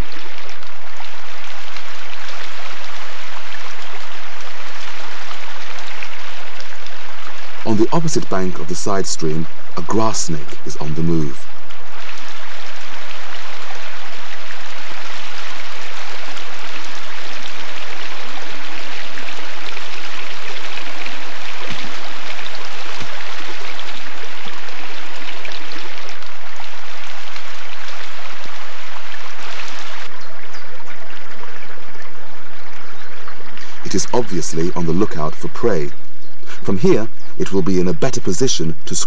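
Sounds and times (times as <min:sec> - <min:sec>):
stream running over stones: 0:00.0 - 0:38.7.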